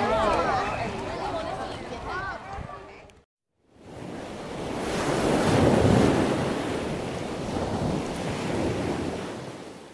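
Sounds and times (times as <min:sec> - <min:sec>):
ocean surf rushing: 0:03.8 - 0:09.9.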